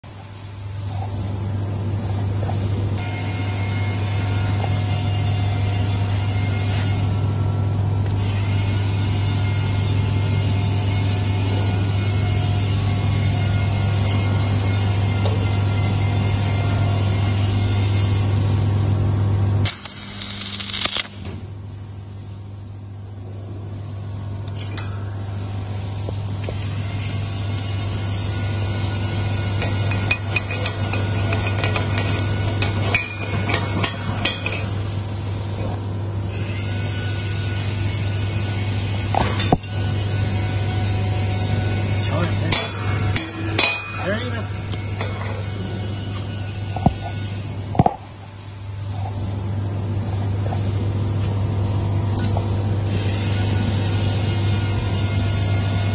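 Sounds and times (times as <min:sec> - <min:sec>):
low electrical hum: 0:00.0 - 0:55.9
welding arc crackling and hissing: 0:19.6 - 0:21.2.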